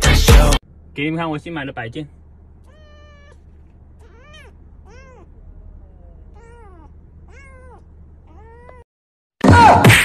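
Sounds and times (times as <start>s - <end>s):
low steady hum: 0.2s - 8.8s
kitten meowing: 2.6s - 8.9s.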